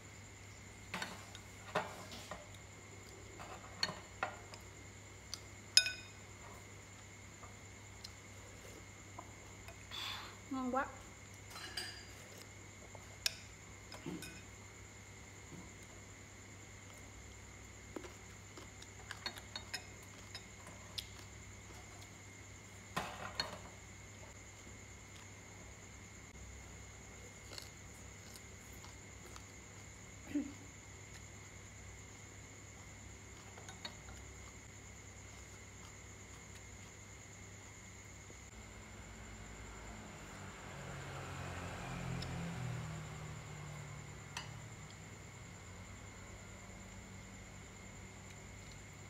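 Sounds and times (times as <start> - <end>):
chopsticks clinking on bowls: 5.7 - 6.2, 19.0 - 21.2.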